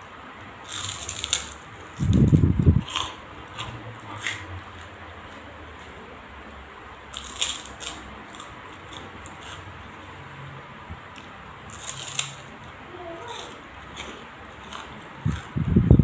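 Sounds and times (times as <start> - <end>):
crunching on a cracker: 0.6 - 6.0, 7.1 - 10.0, 11.1 - 15.6.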